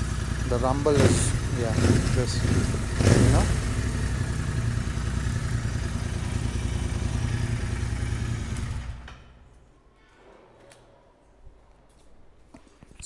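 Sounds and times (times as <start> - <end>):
motorcycle engine idling: 0.0 - 9.5.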